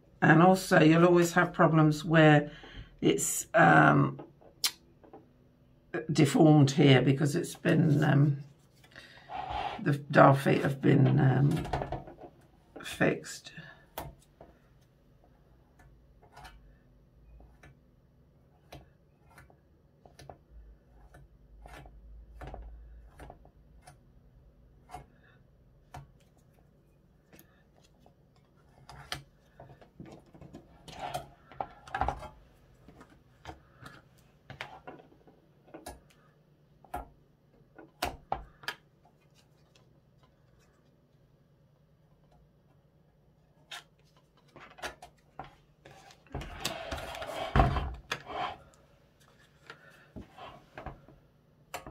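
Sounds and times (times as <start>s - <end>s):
spreader scraping filler: 9.2s - 9.9s, 45.8s - 49.6s.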